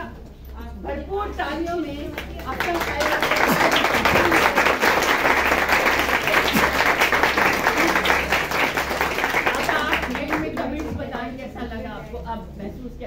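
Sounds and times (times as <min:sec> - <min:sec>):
hands clapping: 0:02.2 - 0:10.9.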